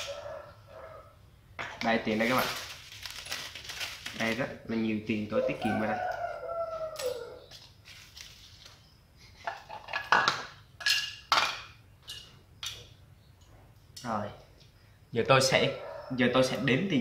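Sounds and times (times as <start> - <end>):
hard objects clacking on tiled floor: 9.4 - 12.9.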